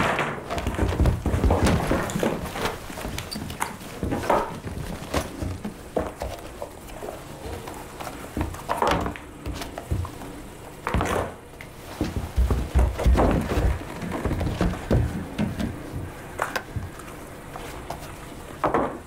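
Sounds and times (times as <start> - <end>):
cloth rustling: 0.4 - 18.6
objects clattering on wooden table: 18.6 - 19.0.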